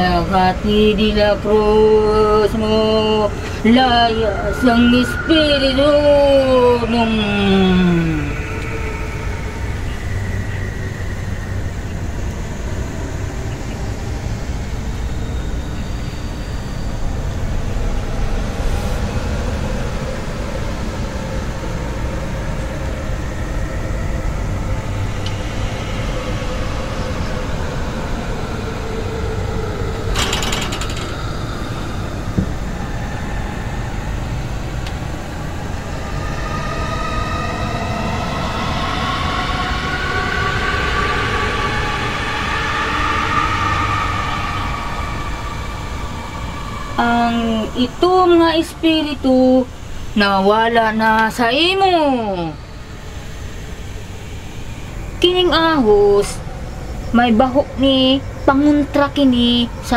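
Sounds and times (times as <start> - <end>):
rumbling rattling drone: 0.0 - 59.9.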